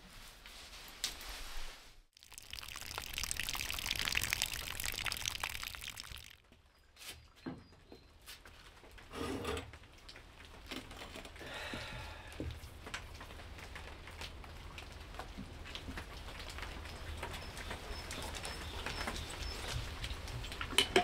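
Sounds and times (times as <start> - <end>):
rain pattering and dripping: 2.2 - 6.8, 8.4 - 9.1, 9.7 - 21.0.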